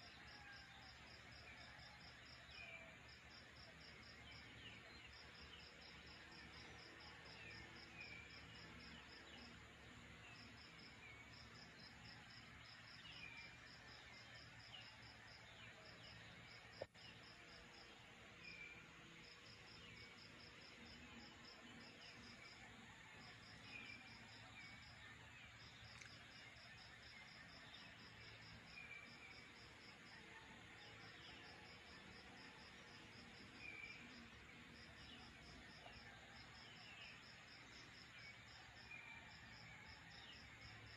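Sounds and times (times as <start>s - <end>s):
crickets chirping: 0.0s - 40.9s.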